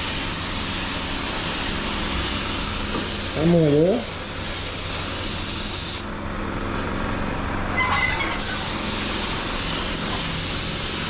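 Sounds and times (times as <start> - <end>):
spray gun hissing: 0.0 - 6.1, 8.4 - 11.0.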